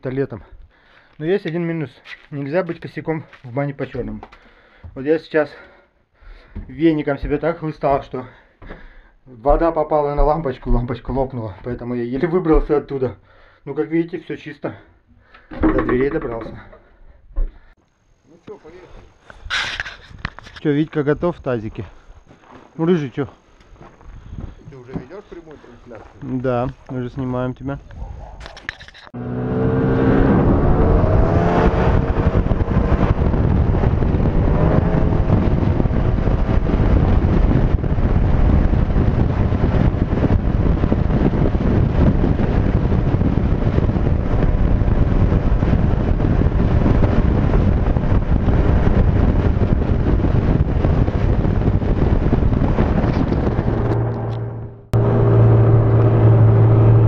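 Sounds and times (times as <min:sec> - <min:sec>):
snowmobile engine: 0:52.8 - 0:57.0.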